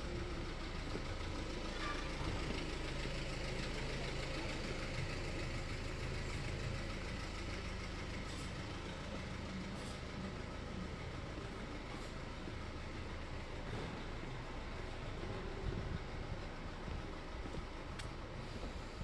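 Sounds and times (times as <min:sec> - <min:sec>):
low engine hum: 0:00.0 - 0:19.0.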